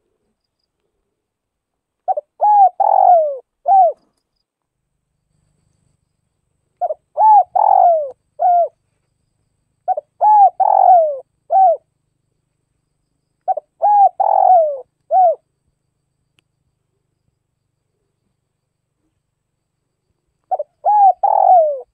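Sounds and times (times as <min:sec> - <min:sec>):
dove cooing: 0:02.1 - 0:04.1, 0:06.8 - 0:08.8, 0:09.9 - 0:11.9, 0:13.5 - 0:15.4, 0:20.5 - 0:21.9.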